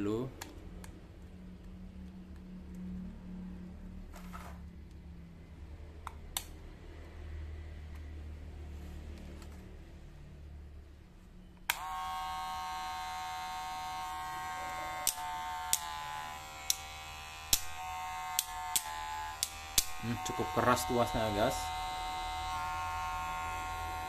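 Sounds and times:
hair clipper switch click: 0:11.7 - 0:12.1, 0:13.0 - 0:20.4
hair clipper running whine: 0:11.7 - 0:24.0.

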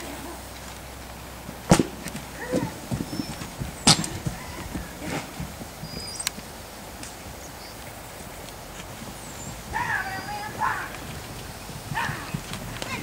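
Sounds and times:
hoof thuds on sand: 0:01.4 - 0:07.2
sharp knocks: 0:01.7 - 0:04.6.

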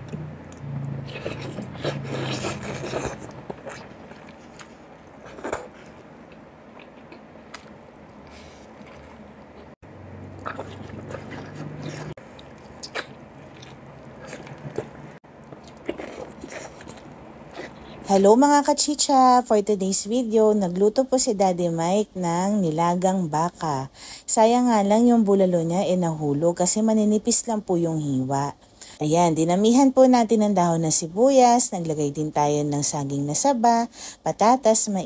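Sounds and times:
man chewing food: 0:00.0 - 0:18.2
low hum: 0:00.0 - 0:18.4.

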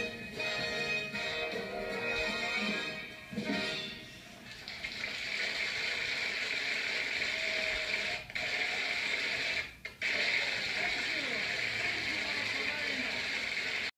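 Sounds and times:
audience applauding through speaker: 0:10.6 - 0:13.9.

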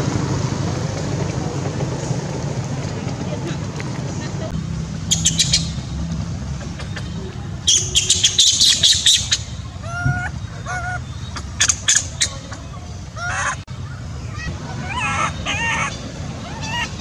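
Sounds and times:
shrill animal chirps: 0:05.1 - 0:05.9, 0:07.6 - 0:12.6, 0:14.3 - 0:17.0.

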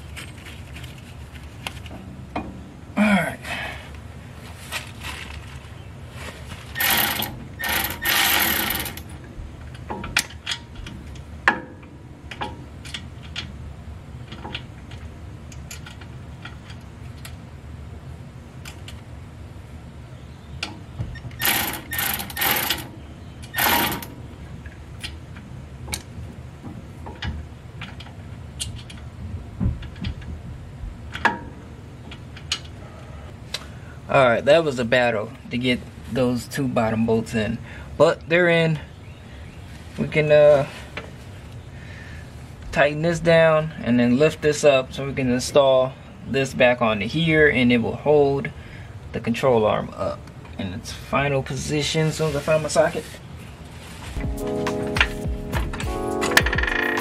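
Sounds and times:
impact wrench rattling: 0:06.8 - 0:09.1, 0:21.4 - 0:22.9, 0:23.6 - 0:24.2.

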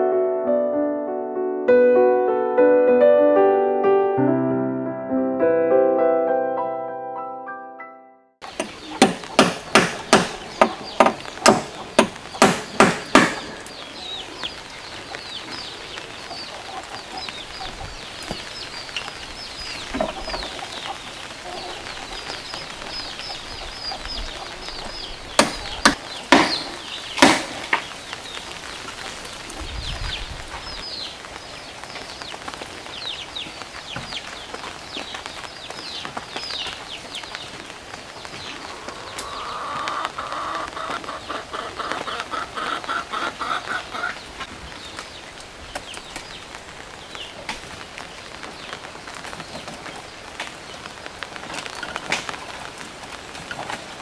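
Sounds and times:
birds chirping: 0:08.4 - 0:54.0
hammer knocking on wood: 0:08.6 - 0:13.7, 0:25.4 - 0:27.8.

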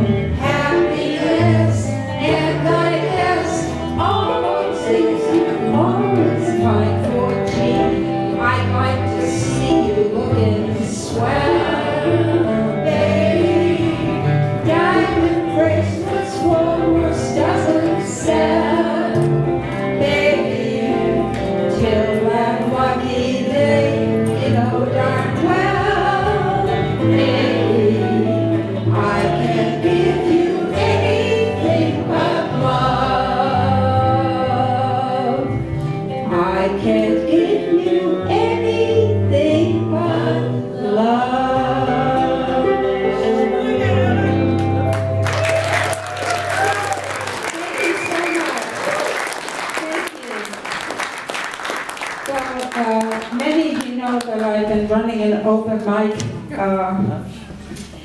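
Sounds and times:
woman singing: 0:00.0 - 0:35.6, 0:36.2 - 0:44.4
electric guitars: 0:00.0 - 0:40.7, 0:41.4 - 0:49.2
backing voices singing: 0:00.0 - 0:44.9
electric bass guitar: 0:00.0 - 0:47.2
live band playing: 0:00.0 - 0:50.6.

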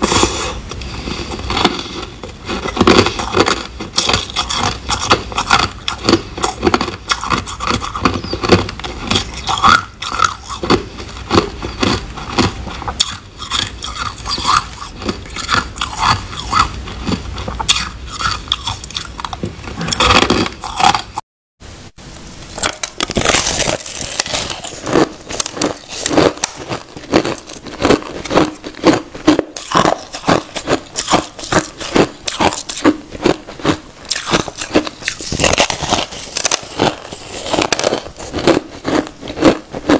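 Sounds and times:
crushed ice being chewed: 0:00.0 - 0:21.2, 0:22.5 - 0:39.9.

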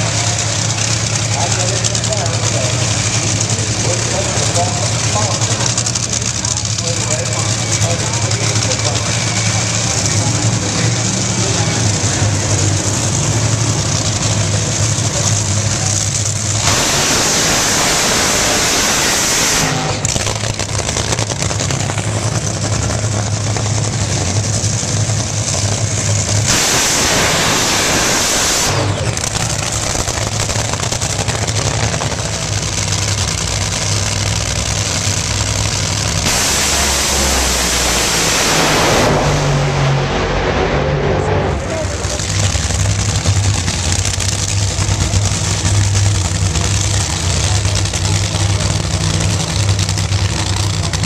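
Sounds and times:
drag racing engines roaring: 0:00.0 - 0:51.0
low steady drone: 0:36.2 - 0:42.5.

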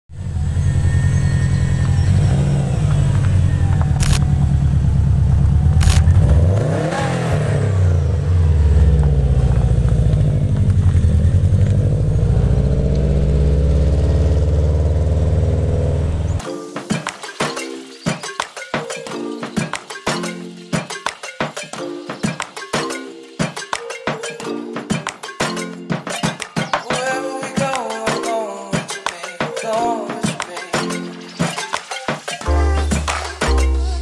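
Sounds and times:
car engine running and revving: 0:00.1 - 0:16.4
sharp clicks: 0:02.9 - 0:04.3, 0:05.8 - 0:06.7.

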